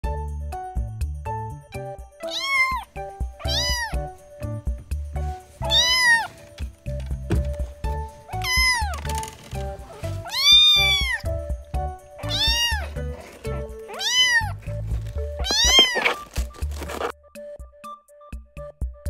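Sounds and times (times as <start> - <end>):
kitten meowing: 2.2 - 4.1, 5.6 - 6.3, 8.3 - 9.0, 9.9 - 11.3, 12.2 - 13.0, 13.9 - 14.6, 15.4 - 16.3
background music with beat: 17.1 - 19.0.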